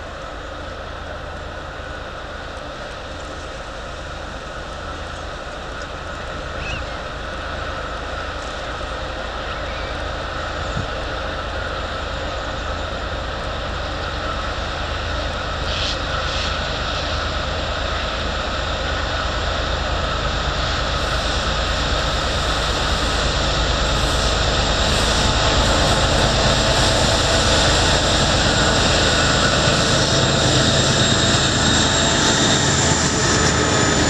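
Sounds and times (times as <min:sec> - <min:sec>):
diesel locomotive engine running: 0:00.0 - 0:34.0.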